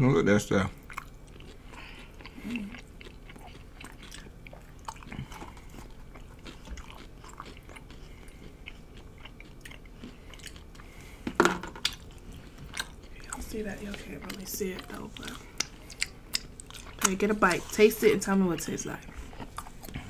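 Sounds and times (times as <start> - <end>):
crunchy taco shell chewing: 0.8 - 11.0.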